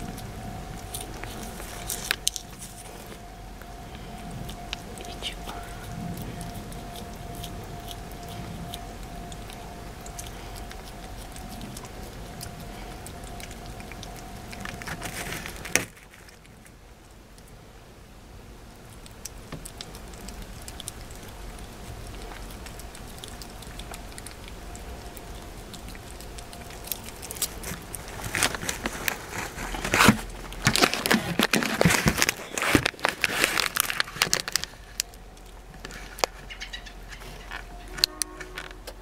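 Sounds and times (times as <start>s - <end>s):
plastic crinkling: 0.0s - 16.8s, 19.5s - 39.0s
cat licking: 0.1s - 16.6s, 18.8s - 30.6s.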